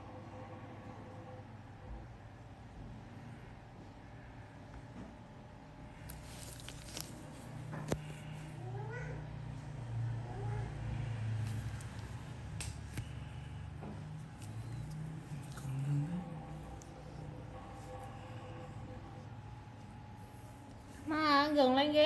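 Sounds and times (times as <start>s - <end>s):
cat purring: 14.1s - 19.3s.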